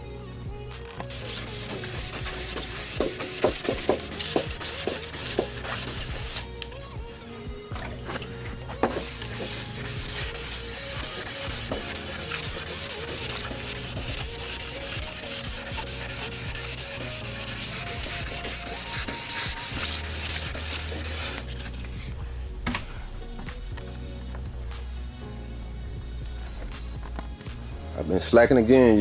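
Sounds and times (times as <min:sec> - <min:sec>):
wet sandpaper scrubbing by hand: 0:01.1 - 0:06.4, 0:08.8 - 0:21.7.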